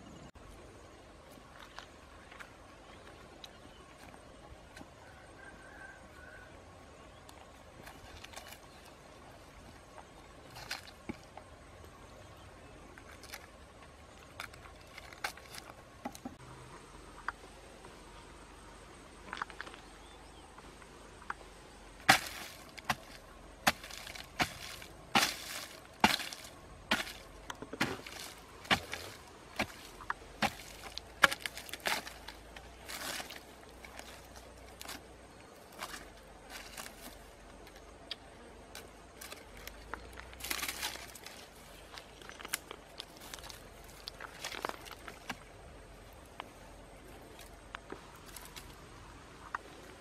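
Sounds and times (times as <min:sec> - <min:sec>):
bamboo pole knocking into dry soil: 0:22.1 - 0:33.4
pole scraping soil: 0:22.1 - 0:37.3.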